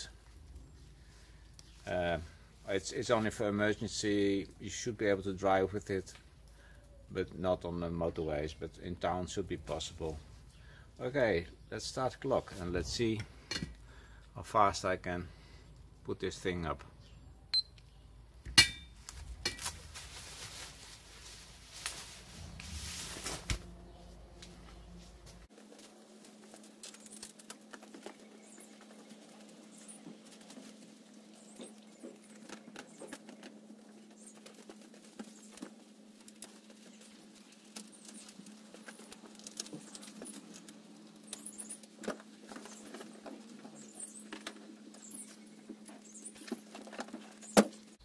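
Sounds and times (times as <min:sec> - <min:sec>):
umbrella fabric rustling: 0:19.0 - 0:32.4.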